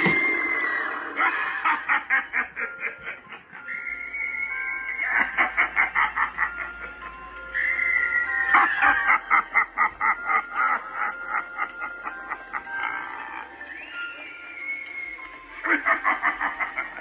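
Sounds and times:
held high note: 0:00.0 - 0:02.1
music: 0:00.0 - 0:17.0
rapid cackling laugh: 0:00.8 - 0:03.8, 0:05.0 - 0:07.0, 0:08.5 - 0:14.6, 0:15.6 - 0:17.0.

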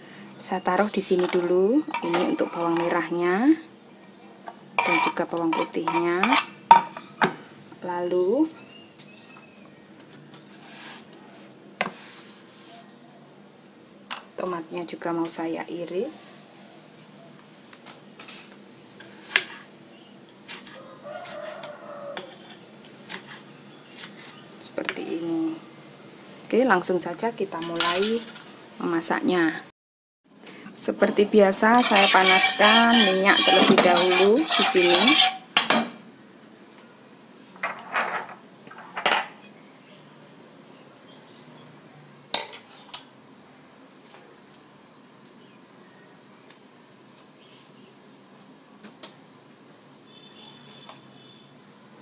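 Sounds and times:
utensils scraping wok: 0:00.5 - 0:03.4, 0:04.8 - 0:07.2, 0:20.5 - 0:24.4, 0:27.6 - 0:28.5, 0:30.8 - 0:36.0
metal utensils clinking: 0:01.2 - 0:03.0, 0:31.2 - 0:35.8.

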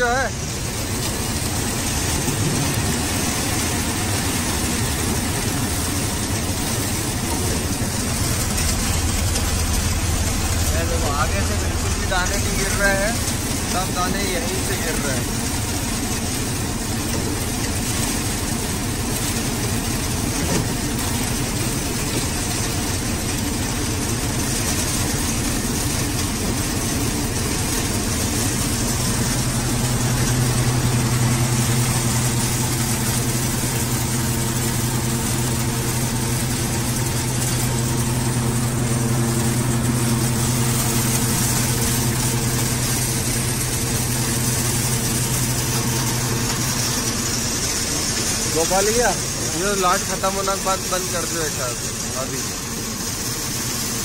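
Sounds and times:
thresher clatter and rush: 0:00.0 - 0:54.0
tractor diesel engine running: 0:00.0 - 0:54.0.

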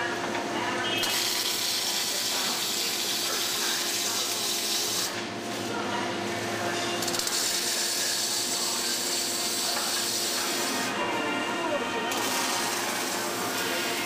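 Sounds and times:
welding arc hissing and crackling: 0:01.0 - 0:05.2, 0:07.1 - 0:10.9.

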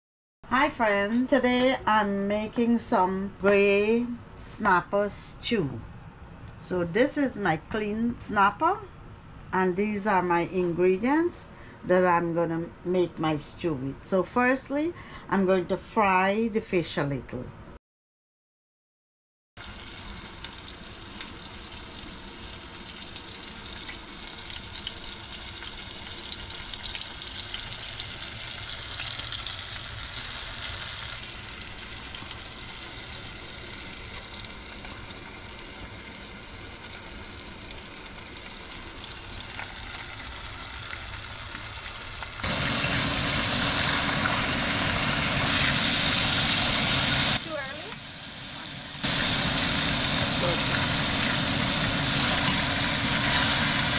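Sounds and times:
fish frying in hot oil: 0:19.6 - 0:53.9.

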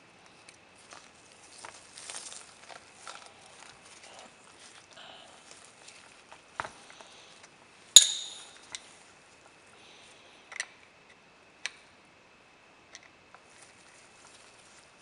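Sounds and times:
metallic clink with ringing: 0:08.0 - 0:08.6
metal clicks and taps: 0:08.0 - 0:08.8.

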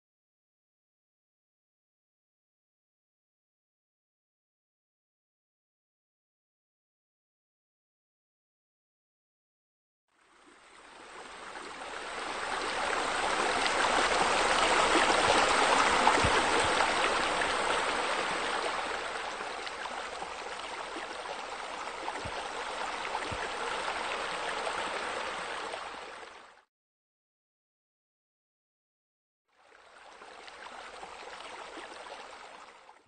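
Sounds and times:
waterfall pouring into pool: 0:12.2 - 0:26.0.

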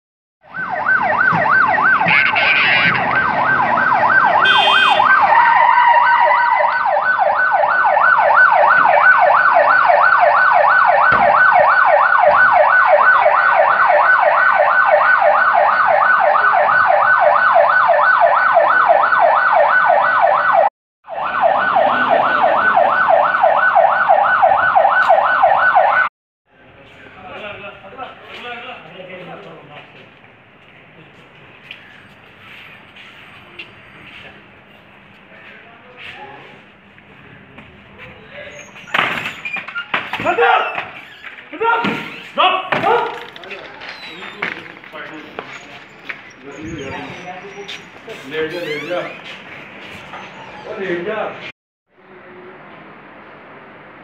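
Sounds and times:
police siren yelping: 0:00.4 - 0:26.1.

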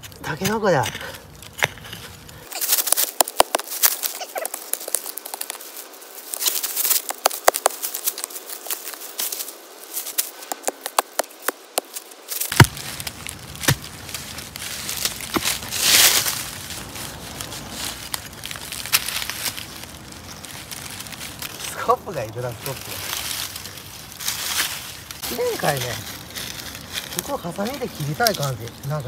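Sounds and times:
dry leaves crunching underfoot: 0:00.0 - 0:29.0
hoe chopping into soil: 0:12.5 - 0:14.0.

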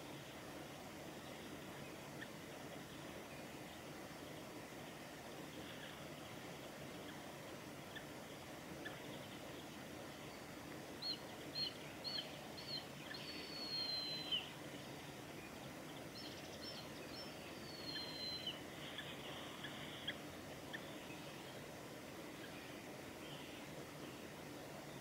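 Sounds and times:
eagle whistled calls: 0:11.0 - 0:14.5, 0:17.7 - 0:19.1.

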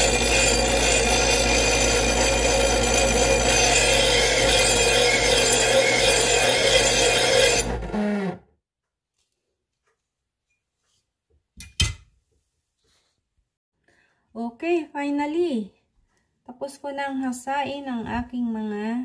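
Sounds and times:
knife grinding in sharpener: 0:00.0 - 0:08.2
knife sharpener motor hum: 0:00.0 - 0:08.4.

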